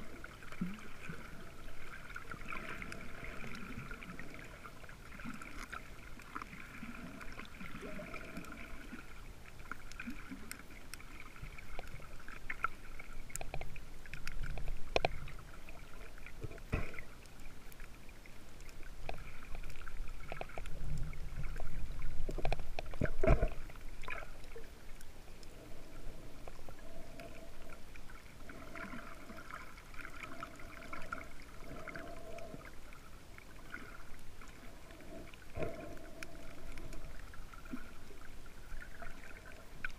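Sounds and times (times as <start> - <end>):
muffled underwater water movement: 0.0 - 39.9
sharp underwater clicks: 11.6 - 15.4, 18.6 - 24.3.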